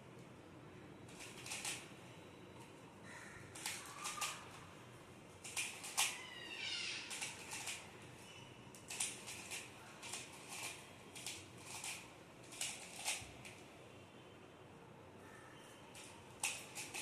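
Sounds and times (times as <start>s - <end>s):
plastic puzzle pieces clicking: 5.4s - 6.1s, 7.1s - 7.8s, 16.0s - 17.0s.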